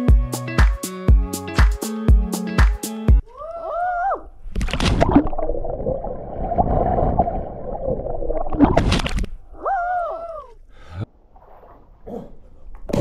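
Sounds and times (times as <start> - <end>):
underwater bubbling and gurgling: 4.8 - 9.3.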